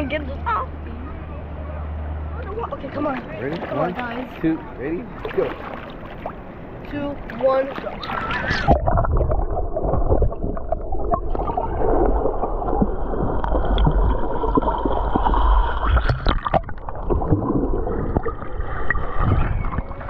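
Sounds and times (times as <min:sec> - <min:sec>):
underwater gurgling and sloshing: 0:02.1 - 0:20.0
clicks and knocks underwater: 0:08.3 - 0:20.0
low rumble: 0:08.4 - 0:20.0.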